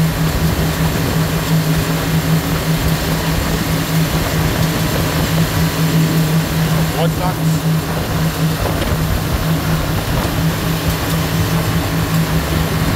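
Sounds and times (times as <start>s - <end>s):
motorboat engine droning: 0.0s - 12.9s
water rushing: 0.0s - 12.9s
wind: 0.0s - 12.9s.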